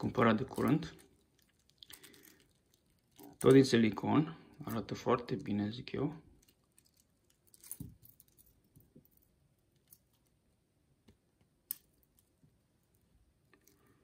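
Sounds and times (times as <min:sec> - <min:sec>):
watch bracelet clicking and clinking: 0:06.4 - 0:10.3.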